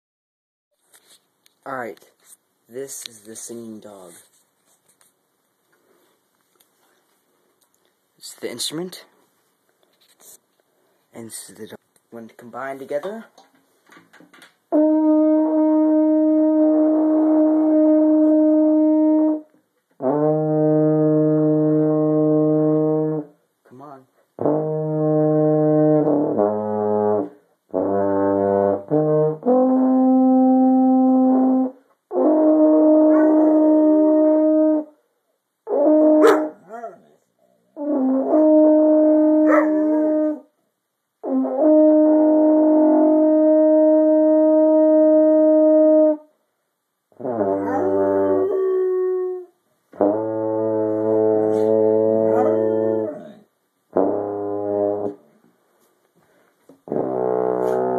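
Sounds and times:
baritone horn low notes: 14.7s - 35.0s, 35.6s - 40.5s, 41.2s - 46.3s, 47.1s - 55.4s, 56.8s - 57.9s
dog howling: 33.1s - 33.6s, 39.4s - 40.4s, 47.6s - 49.5s, 52.2s - 53.4s.

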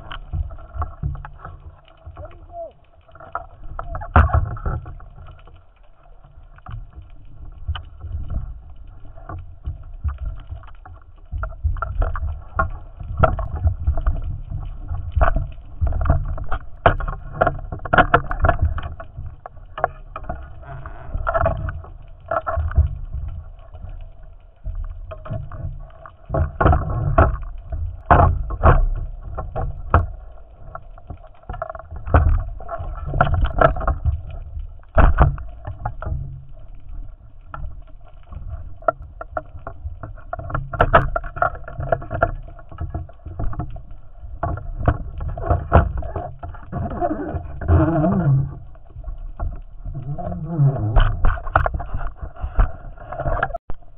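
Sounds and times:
muffled underwater rumble: 0.0s - 53.9s
underwater clicks and knocks: 0.0s - 53.9s.

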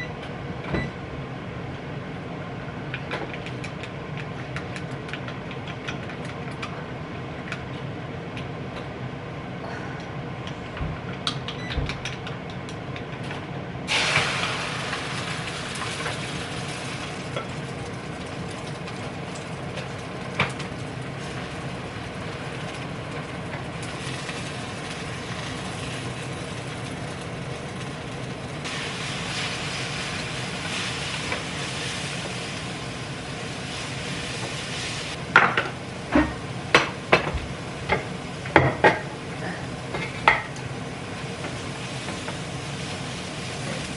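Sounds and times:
sizzling in frying pan: 13.9s - 43.9s.

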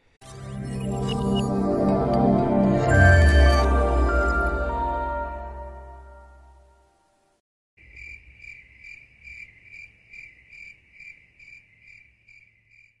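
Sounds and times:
closing music: 0.3s - 7.3s.

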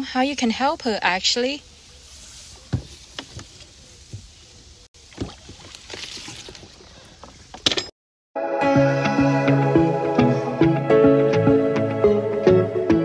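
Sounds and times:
oars splashing in water: 5.0s - 7.6s
music: 8.4s - 13.0s.

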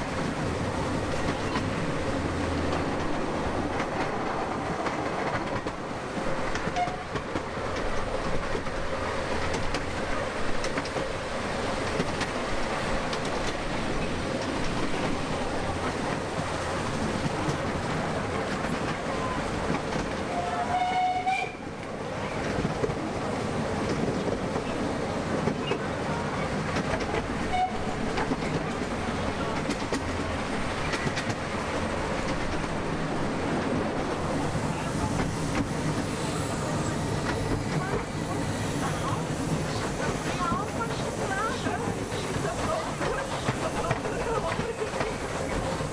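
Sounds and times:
train wheels clickety-clack on track: 0.0s - 45.9s
train signal tone: 20.3s - 21.6s, 27.5s - 28.0s.

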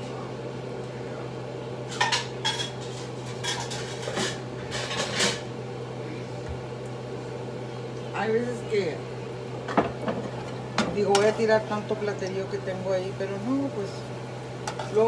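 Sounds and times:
steady low hum: 0.0s - 15.0s
dishes and pots clattering: 1.9s - 5.5s, 9.7s - 11.3s.

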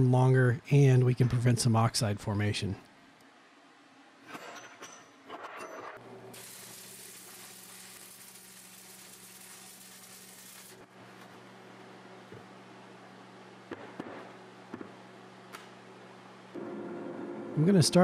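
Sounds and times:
arc welding hiss: 6.3s - 10.9s.

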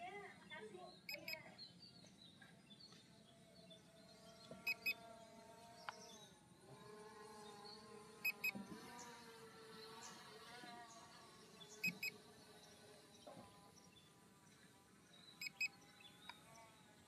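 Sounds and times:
remote controller warning beeps: 1.1s - 1.4s, 4.7s - 5.0s, 8.3s - 8.5s, 11.8s - 12.1s, 15.4s - 15.7s
faint humming tone: 3.5s - 17.0s.

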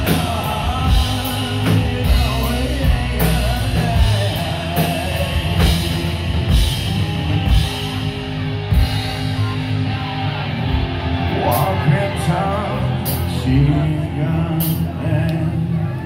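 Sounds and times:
man singing into a microphone: 0.0s - 6.6s, 11.2s - 16.0s
electric guitar: 0.0s - 16.0s.

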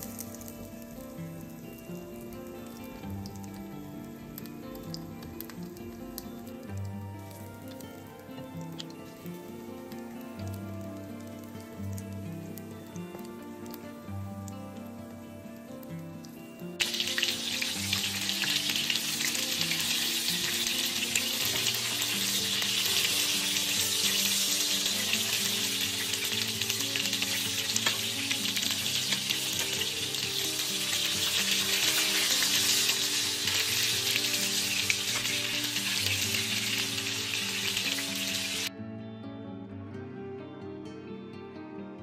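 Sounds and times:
fish frying in oil: 0.0s - 0.6s, 16.8s - 38.7s.

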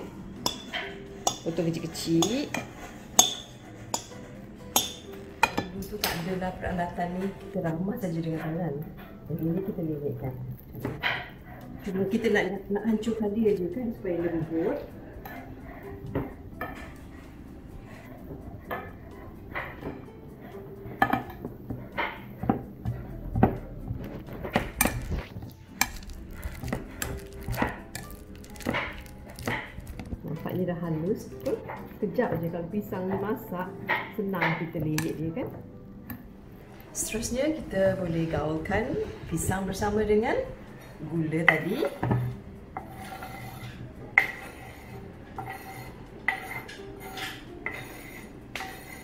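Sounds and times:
spoon scraping wooden board: 24.0s - 30.3s, 42.8s - 49.0s.

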